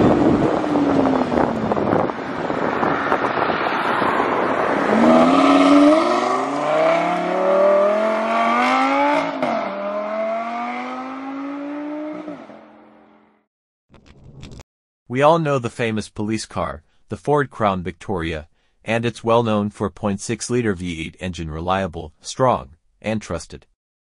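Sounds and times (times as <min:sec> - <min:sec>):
sports car accelerating hard: 0:00.0 - 0:13.2.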